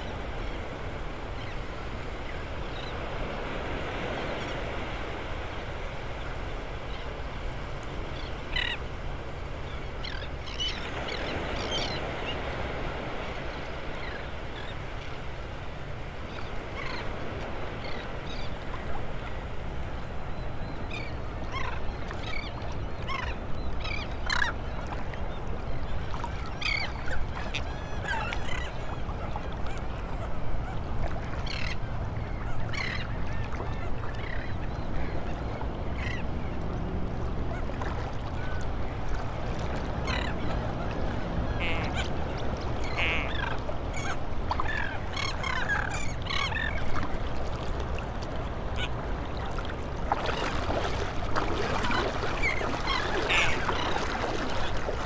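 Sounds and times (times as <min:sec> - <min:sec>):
seabird flock calling: 0:08.1 - 0:08.9, 0:20.8 - 0:24.7, 0:26.5 - 0:36.6, 0:39.9 - 0:47.2, 0:48.6 - 0:55.0.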